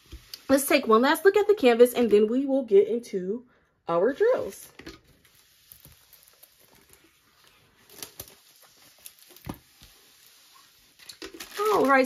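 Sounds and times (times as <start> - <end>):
plastic rustling and crackling: 4.2 - 12.0.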